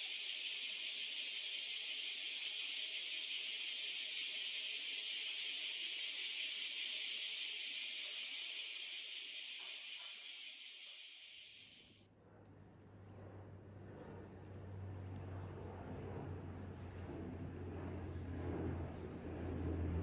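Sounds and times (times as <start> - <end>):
cicadas chorus: 0.0 - 12.0.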